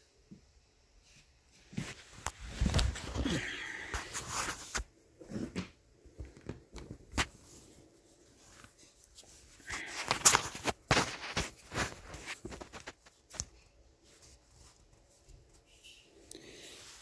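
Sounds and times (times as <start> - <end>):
plastic parts rustling: 8.4 - 13.5.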